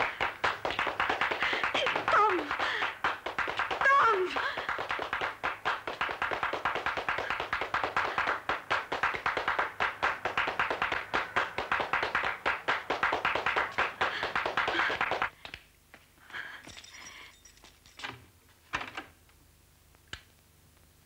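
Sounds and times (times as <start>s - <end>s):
fast sharp taps: 0.1s - 15.6s.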